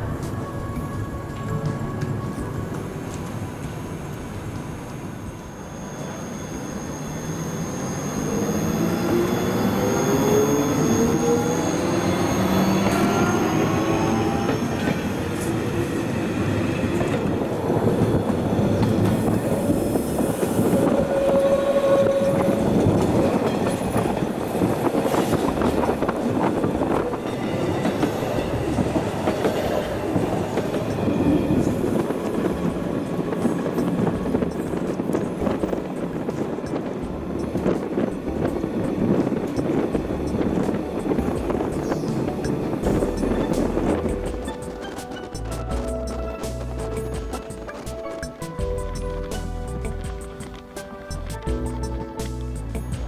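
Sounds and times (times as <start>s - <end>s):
electric train motors whining: 4.3s - 32.0s
train wheels clattering over rail joints: 16.9s - 51.9s.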